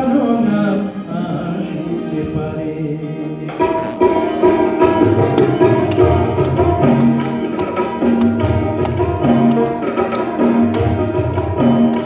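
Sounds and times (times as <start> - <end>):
plucked melodic instruments: 0.0 - 12.0
hand drums beat: 3.5 - 12.0.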